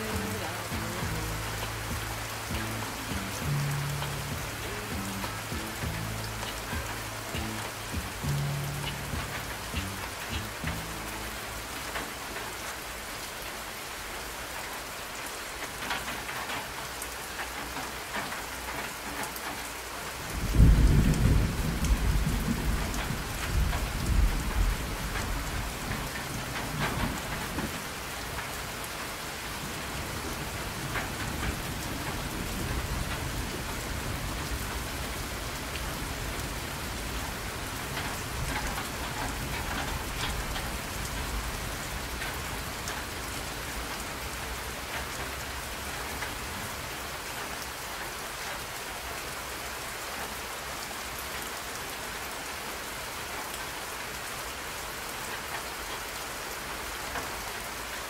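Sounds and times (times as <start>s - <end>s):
steady rain: 0.0s - 58.0s
low roll of thunder: 20.3s - 28.0s, 29.5s - 44.0s.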